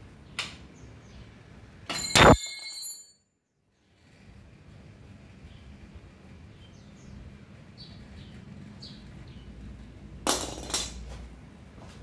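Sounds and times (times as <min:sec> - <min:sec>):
metal tools clattering: 0:01.9 - 0:03.2.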